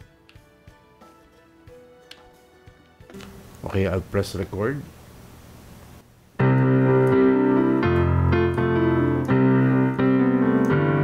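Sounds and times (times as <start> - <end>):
electronic keyboard piano chords: 6.4 - 11.0.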